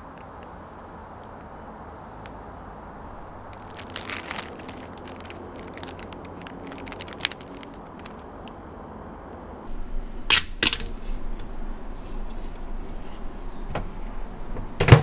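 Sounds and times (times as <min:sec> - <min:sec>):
plastic packaging crinkling: 0:03.2 - 0:08.5
sharp plastic clacks: 0:10.3 - 0:11.5.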